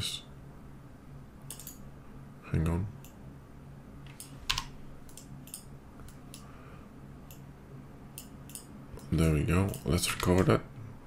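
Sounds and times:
faint low hum: 0:00.0 - 0:11.0
keyboard and mouse clicks: 0:01.5 - 0:01.8, 0:04.1 - 0:06.5, 0:08.2 - 0:09.1, 0:09.7 - 0:10.5.

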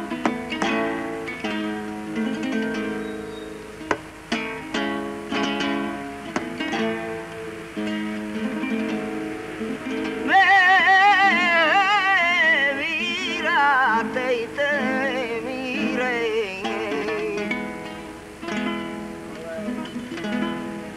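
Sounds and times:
flamenco acoustic guitar: 0:00.0 - 0:20.9
person singing wavering melody: 0:09.4 - 0:18.0.

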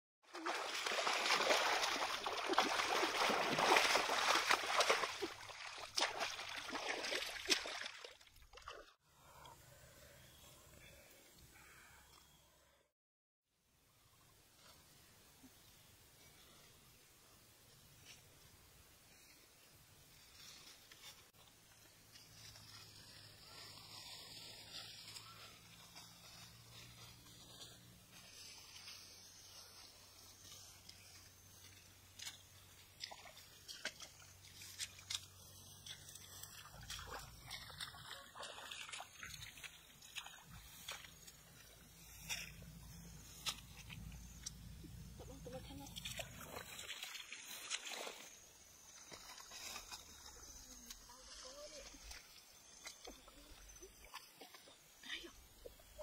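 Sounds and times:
water sloshing and splashing: 0:00.3 - 0:09.0, 0:32.2 - 0:44.3, 0:44.9 - 0:50.4, 0:51.8 - 0:55.3.

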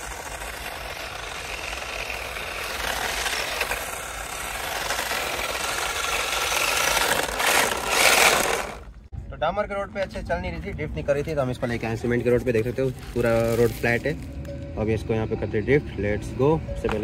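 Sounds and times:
rc car motor and tyres hissing: 0:00.0 - 0:09.0, 0:11.6 - 0:14.2.

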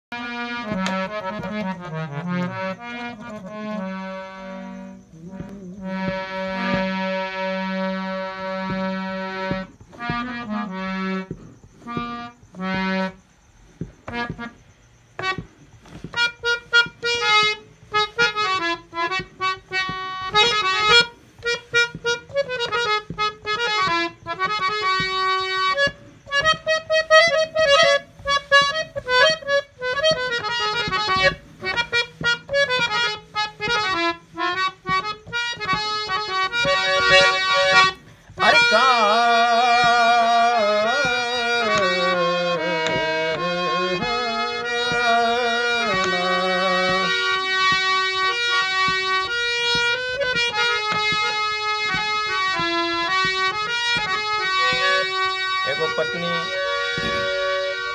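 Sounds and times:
harmonium melody: 0:00.0 - 0:57.9
person singing long wavering notes: 0:05.1 - 0:06.9.

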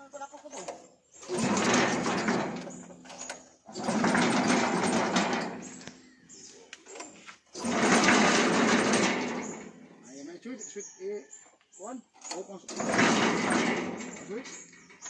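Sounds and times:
small engine pull-start bursts: 0:00.6 - 0:06.1, 0:06.9 - 0:09.9, 0:12.2 - 0:15.0.

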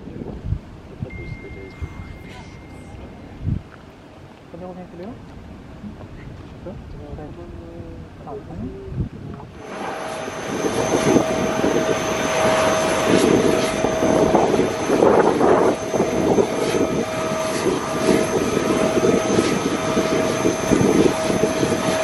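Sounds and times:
low engine rumble: 0:00.0 - 0:15.1
jet engines whining: 0:01.0 - 0:04.1, 0:09.5 - 0:22.0.

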